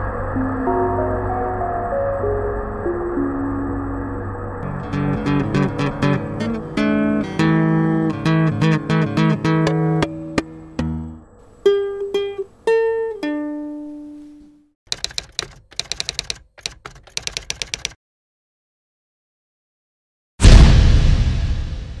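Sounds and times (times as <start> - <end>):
plucked guitar music: 4.6 - 14.6
quick uneven clicks: 14.9 - 18.0.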